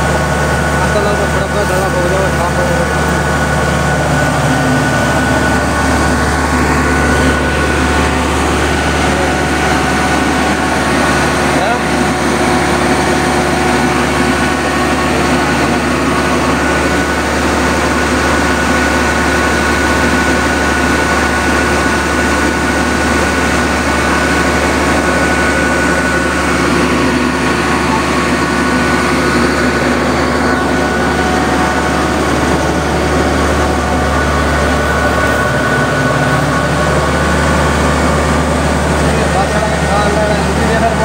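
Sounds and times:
combine harvester engine drone: 0.0s - 41.0s
high machinery whine: 0.0s - 41.0s.

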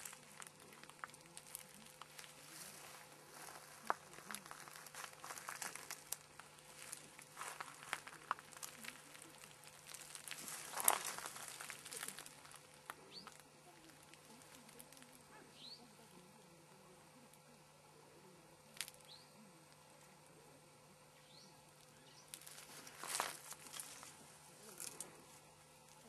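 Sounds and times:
faint rustling and crinkling: 0.0s - 26.0s.

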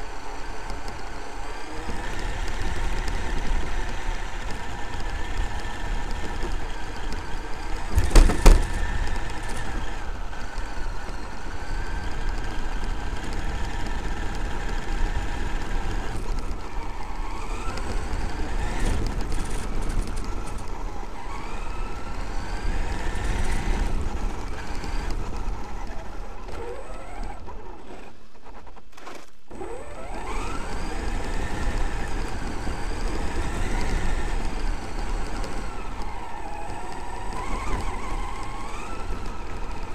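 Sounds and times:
rumble of drivetrain and tyres: 0.0s - 39.9s
electric motor whining: 29.5s - 39.9s.

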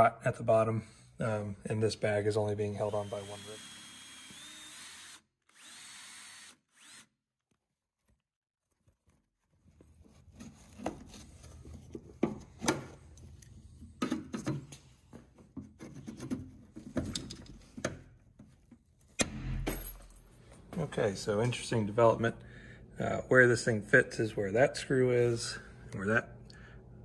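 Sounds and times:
drill driving a screw: 2.8s - 7.2s.

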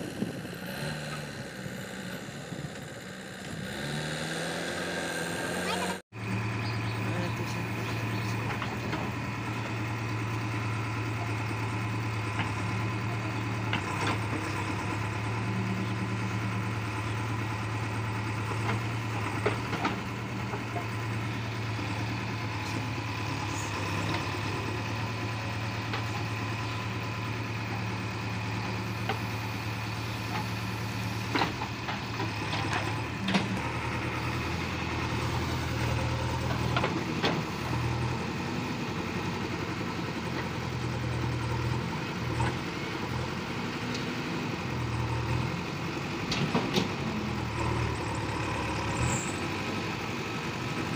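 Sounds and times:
diesel engine running: 0.0s - 50.9s.

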